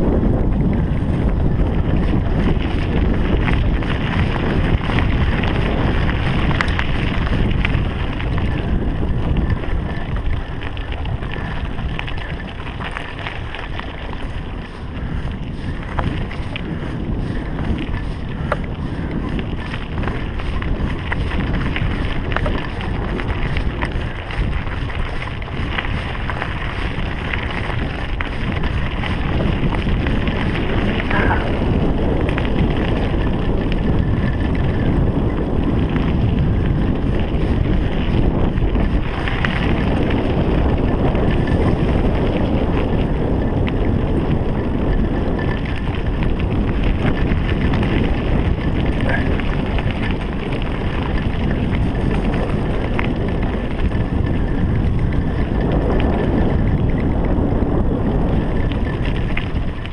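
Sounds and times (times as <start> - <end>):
bike clicks and knocks: 0.0 - 59.9
bike tyres rolling on track: 0.0 - 59.9
wind buffeting microphone: 0.0 - 59.9.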